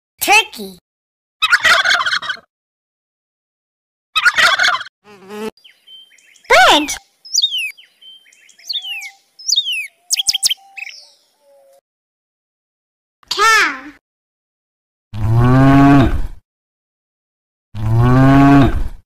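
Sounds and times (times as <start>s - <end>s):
turkey gobbling: 1.4s - 2.5s, 4.2s - 4.9s
songbird whistling: 5.6s - 11.8s.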